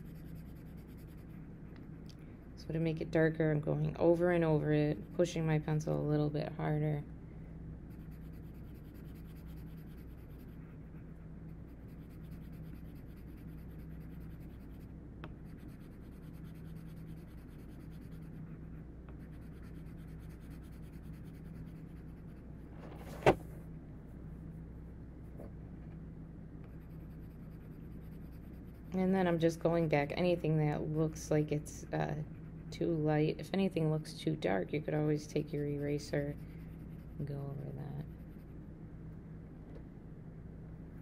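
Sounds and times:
pencil scratching on paper: 0.0 - 2.0, 7.9 - 22.4, 26.7 - 33.4, 34.4 - 38.5.

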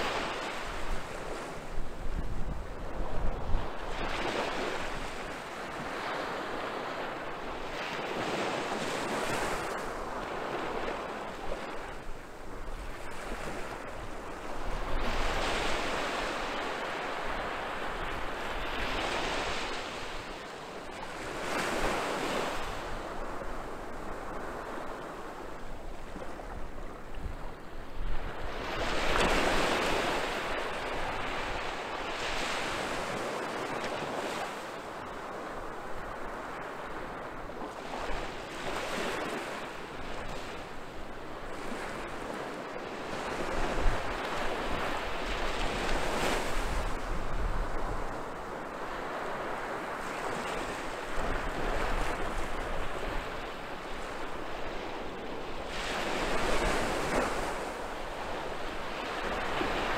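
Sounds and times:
wind buffeting microphone: 0.0 - 20.3, 35.2 - 59.9
waves washing up a beach: 0.0 - 59.9.

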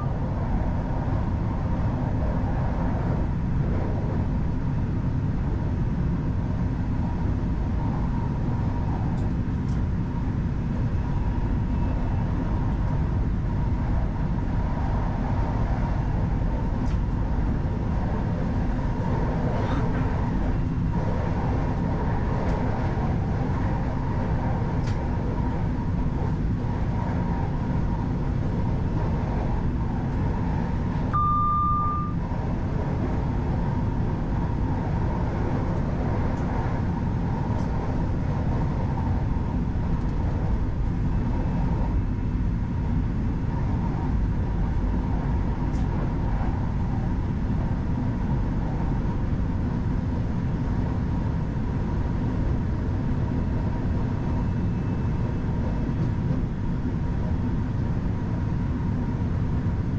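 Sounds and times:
train wheels rumbling on rail: 0.0 - 31.2, 32.0 - 59.9
faint steady whine: 31.1 - 32.3
short electronic beep: 31.2 - 32.2.

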